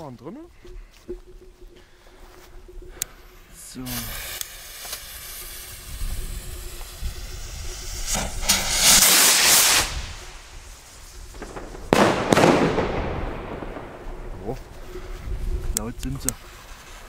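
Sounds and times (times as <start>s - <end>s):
fuse hissing: 2.8s - 11.4s
rocket whoosh: 3.8s - 14.9s
firework bang: 3.9s - 10.6s, 11.3s - 14.6s.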